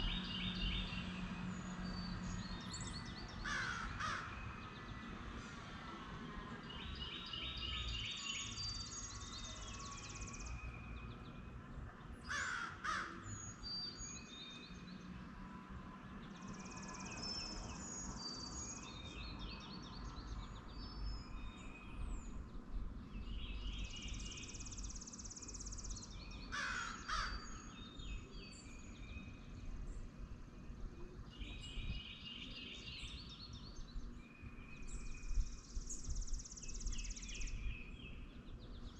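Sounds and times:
bird singing high song phrase: 0.0s - 3.4s, 31.0s - 38.9s.

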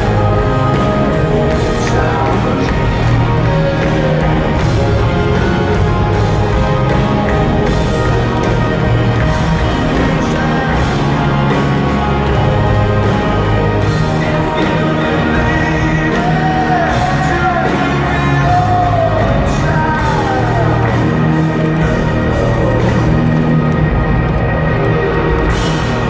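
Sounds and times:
person singing: 0.0s - 23.5s
live rock band: 0.0s - 26.0s.

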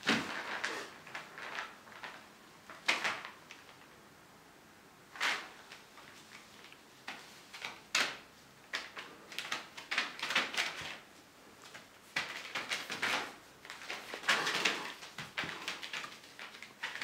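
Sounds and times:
plastic sheeting crinkling: 0.0s - 4.0s, 5.1s - 17.0s.

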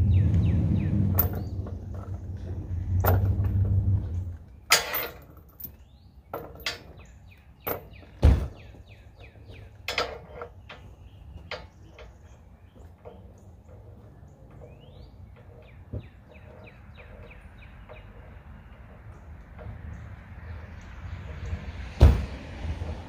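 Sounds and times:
low motor hum: 0.0s - 4.7s
birds chirping: 0.0s - 23.0s
chain hoist metal clanks: 1.1s - 8.0s, 9.2s - 22.2s
heavy thump: 8.2s - 8.7s, 22.0s - 22.4s.

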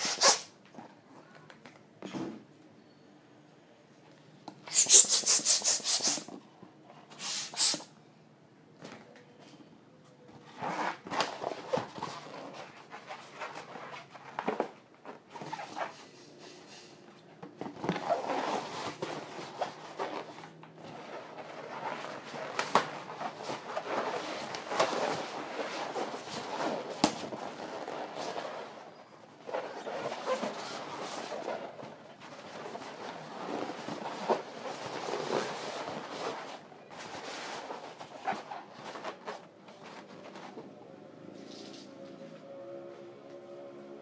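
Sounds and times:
balloons rubbing and squeaking: 0.0s - 0.6s, 4.7s - 6.3s, 7.1s - 7.9s, 10.4s - 14.4s, 15.1s - 16.4s, 17.8s - 40.4s.

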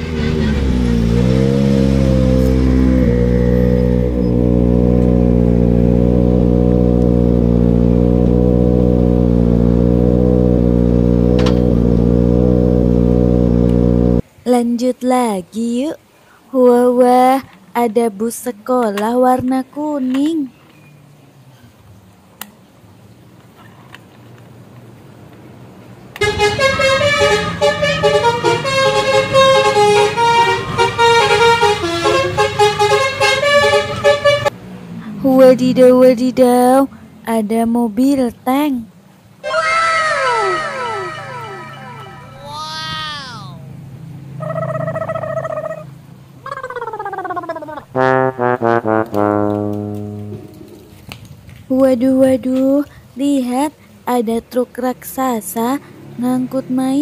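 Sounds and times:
car engine hum: 0.0s - 14.3s, 25.0s - 47.7s
toy bus horn tune: 26.2s - 34.5s, 39.4s - 43.0s, 48.0s - 50.6s.

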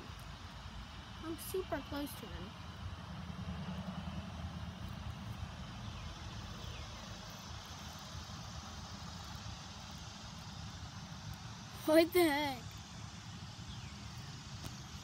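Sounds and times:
even hiss: 0.0s - 15.0s.

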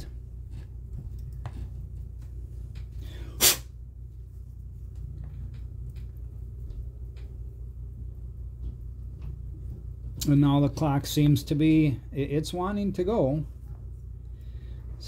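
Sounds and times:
low hum: 0.0s - 15.0s
faint small clicks and taps: 4.9s - 7.4s.

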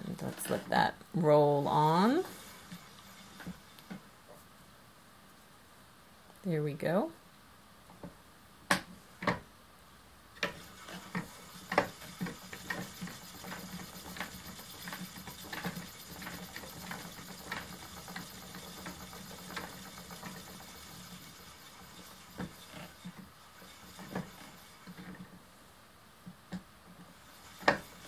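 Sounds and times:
spinning wheel whirring: 0.0s - 4.1s, 10.4s - 25.4s, 27.1s - 28.0s.

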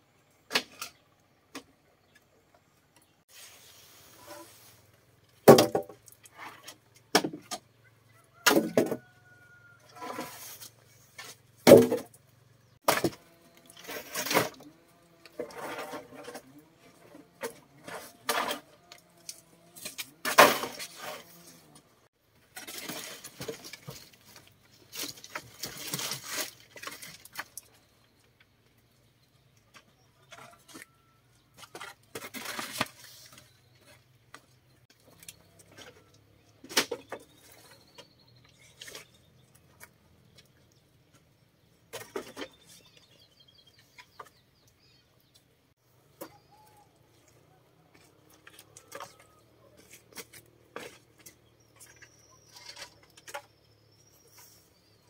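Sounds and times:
scraping and rustling: 3.3s - 5.3s, 8.8s - 12.1s, 12.8s - 27.9s, 29.8s - 44.4s.

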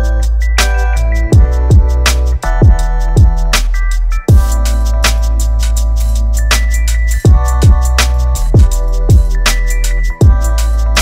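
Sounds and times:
deep bass: 0.0s - 11.0s
electronic music: 0.0s - 11.0s
hi-hat ticks: 0.1s - 11.0s
heavy kick drums dropping in pitch: 4.3s - 4.6s, 7.3s - 8.0s.

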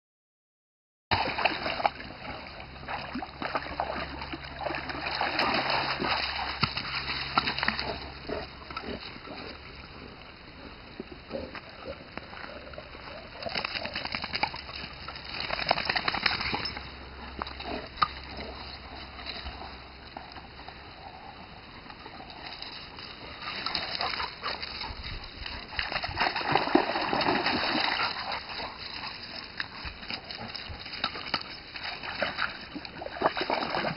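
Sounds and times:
water splashing: 1.1s - 9.6s, 22.4s - 33.9s
dogs grunting and growling: 7.7s - 14.3s
paws scrabbling over gravel: 11.4s - 21.3s, 21.9s - 33.9s.

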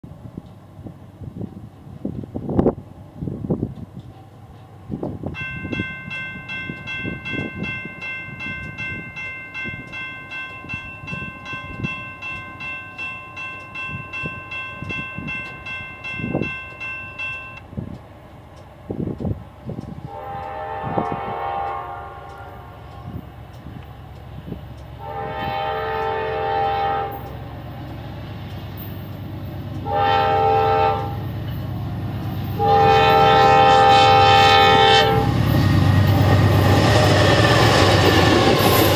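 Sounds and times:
wind buffeting microphone: 0.1s - 13.0s, 13.6s - 21.5s, 22.7s - 25.5s
crossing warning bell ringing: 5.2s - 17.7s, 20.1s - 28.0s, 28.6s - 38.9s
locomotive horn blasts: 20.0s - 23.2s, 25.0s - 27.3s, 29.8s - 31.2s, 32.6s - 35.4s.

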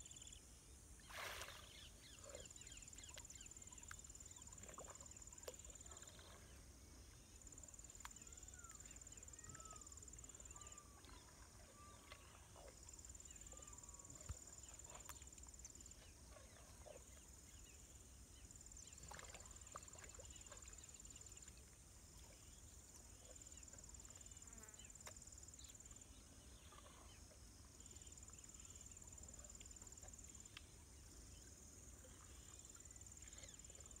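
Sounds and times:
faint clicks and chirps: 2.1s - 6.4s, 7.6s - 10.5s, 11.9s - 16.1s, 29.4s - 30.8s.

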